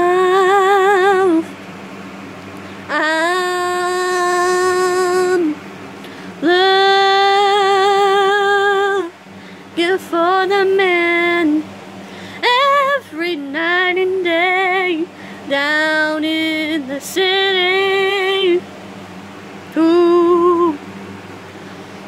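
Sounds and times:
woman singing unaccompanied: 0:00.0 - 0:01.6, 0:02.8 - 0:05.6, 0:06.3 - 0:11.8, 0:12.4 - 0:18.7, 0:19.6 - 0:21.0.

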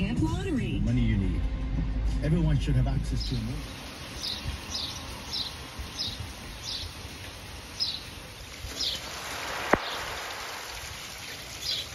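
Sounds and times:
small bird chirping: 0:03.2 - 0:07.0, 0:07.7 - 0:09.1
rain on grass and gravel: 0:03.3 - 0:11.9.

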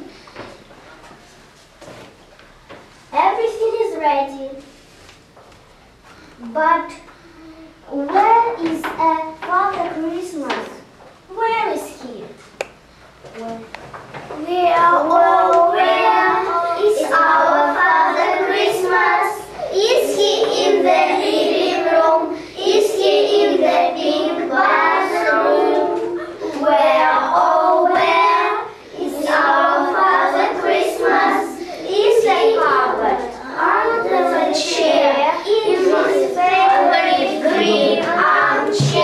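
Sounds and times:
children singing: 0:14.6 - 0:39.0.

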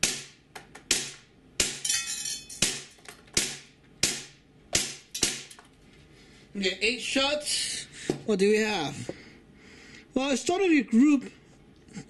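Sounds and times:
airsoft pistol shots: 0:00.0 - 0:01.8, 0:02.6 - 0:05.5.

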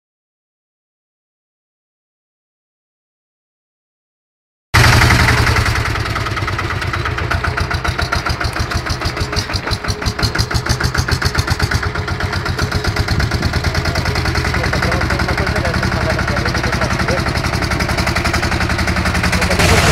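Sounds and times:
tractor diesel engine pulsing: 0:04.8 - 0:19.9.

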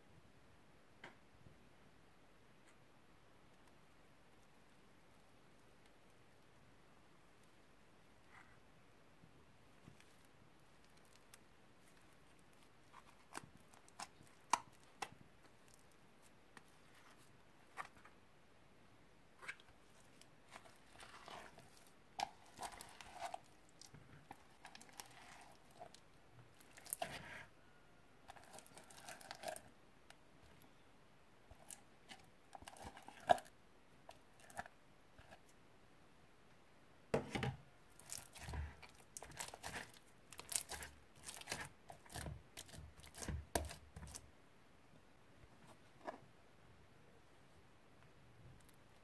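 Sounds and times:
slime tearing from plastic: 0:38.0 - 0:44.1.

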